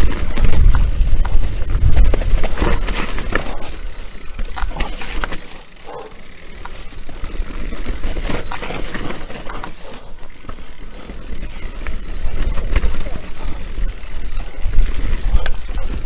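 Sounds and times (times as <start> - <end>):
wind rumble on microphone: 0.0 - 3.7
bike knocking and rattling: 0.0 - 16.0
bike tyres rolling over dirt: 0.0 - 16.0.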